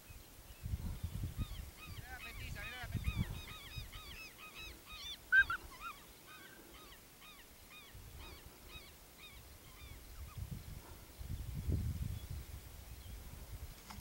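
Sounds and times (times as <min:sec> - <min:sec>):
wind rumble on microphone: 0:00.0 - 0:04.2, 0:09.6 - 0:14.0
birds calling: 0:01.0 - 0:11.2.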